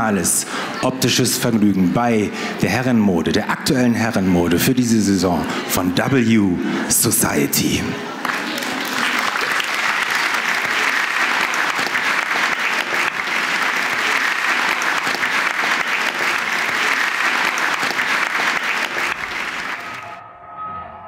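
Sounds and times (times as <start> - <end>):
audience applauding: 8.1 - 20.2
music: 10.8 - 21.0.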